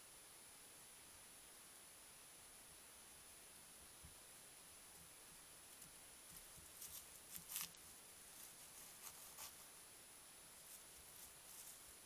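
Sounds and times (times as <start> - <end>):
animals rustling in leaf litter: 6.3 - 9.7, 10.6 - 12.0.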